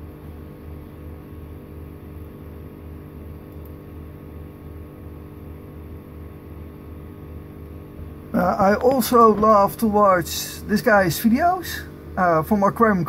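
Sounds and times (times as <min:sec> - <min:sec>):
pulsing low hum: 0:04.8 - 0:13.0.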